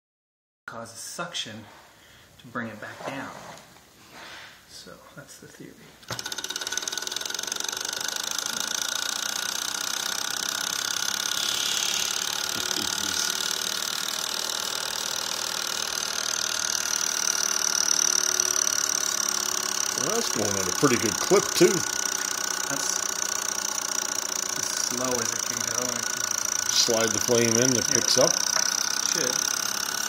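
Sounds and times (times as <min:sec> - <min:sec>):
model engine mechanical whir: 0:06.0 - 0:30.0.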